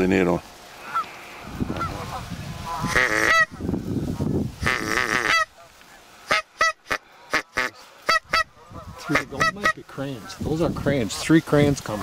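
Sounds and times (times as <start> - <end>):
geese honking: 0.8 - 3.7, 4.6 - 12.0.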